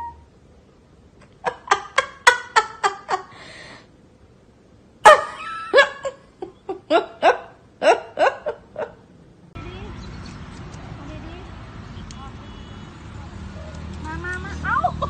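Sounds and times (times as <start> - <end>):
person laughing: 1.3 - 3.4, 5.1 - 9.0
breathy gasp: 3.3 - 3.9.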